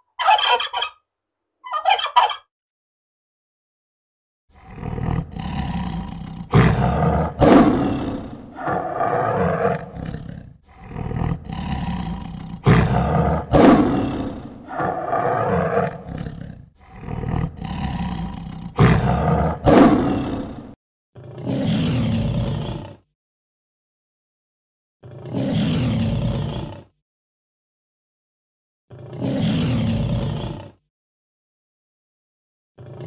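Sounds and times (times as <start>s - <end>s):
tiger roaring and growling: 4.5s - 23.1s, 25.0s - 27.0s, 28.9s - 30.8s, 32.8s - 33.0s.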